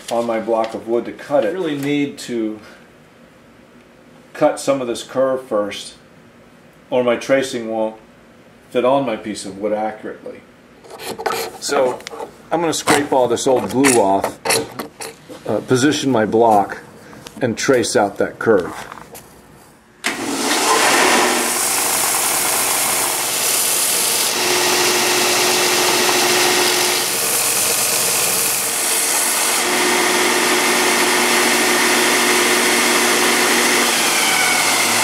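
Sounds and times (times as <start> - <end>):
belt sander grinding wood: 20.1 - 35.0.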